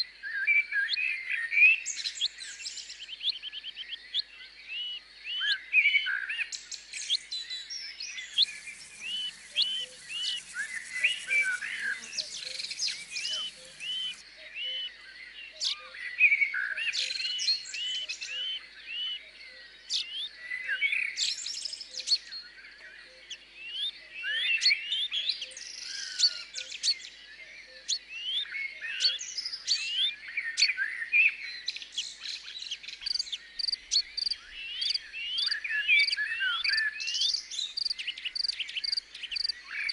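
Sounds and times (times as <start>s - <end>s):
small birds chirping: 1.2s - 39.9s
faint high hiss: 8.0s - 14.2s.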